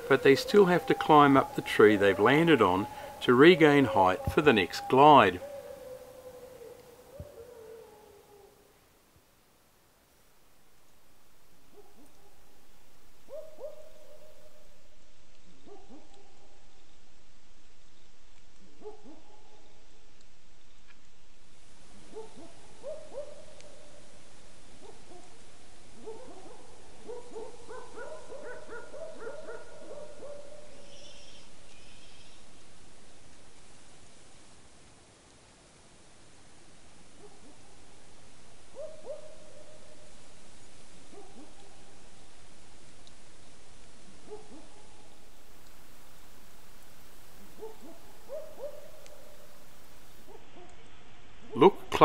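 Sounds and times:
night bird hooting: 0.0s - 8.7s, 44.3s - 50.4s
steady hiss: 0.0s - 15.6s, 19.7s - 52.0s
short hooting calls: 44.4s - 50.3s.

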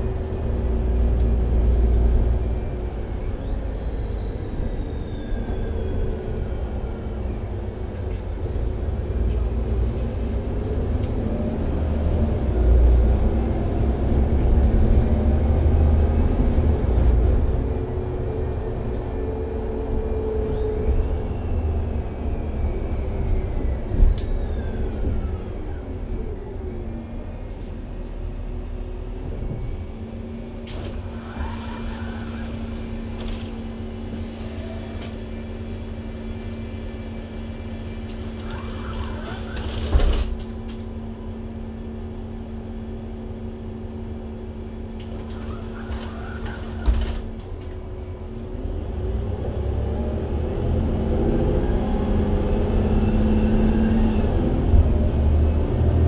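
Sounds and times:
bus engine hum: 0.0s - 56.0s.

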